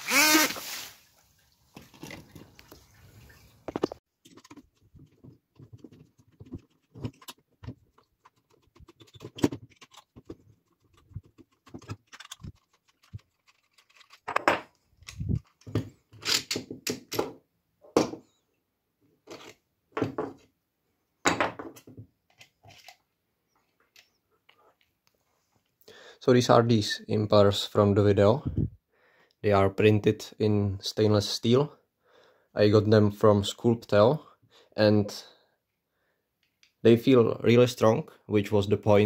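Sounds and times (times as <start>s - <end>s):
jet pump running: 0.0s - 0.7s
screwdriver and plastic parts clicking: 4.2s - 17.2s, 22.3s - 23.0s.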